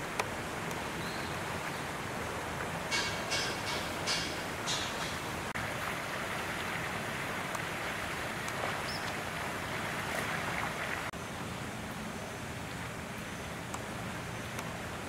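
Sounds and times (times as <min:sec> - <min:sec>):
rushing outdoor background noise: 0:00.0 - 0:15.0
faint clicks: 0:14.5 - 0:14.7.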